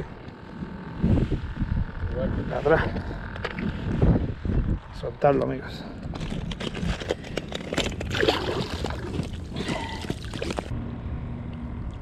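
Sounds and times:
water splashing and trickling: 7.6s - 10.7s.

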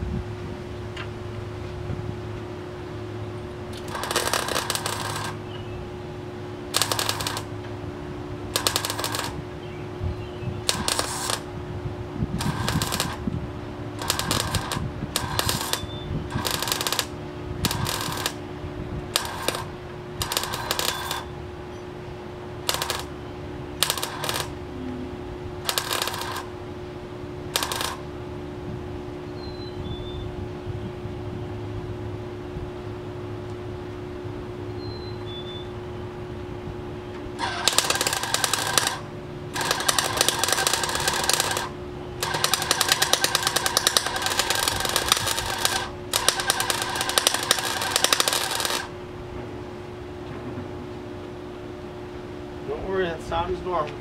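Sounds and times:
steady hum: 0.0s - 54.0s
arc welder crackling: 3.6s - 5.6s, 6.6s - 7.8s, 8.4s - 9.6s, 10.6s - 21.4s, 22.4s - 23.2s, 23.8s - 26.7s, 27.4s - 28.2s, 37.4s - 49.1s.

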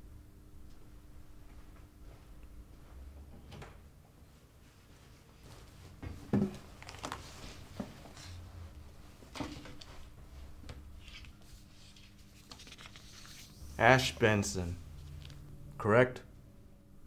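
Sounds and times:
faint electrical hum: 0.0s - 17.0s
paper rustling: 6.7s - 8.4s, 11.0s - 14.2s.

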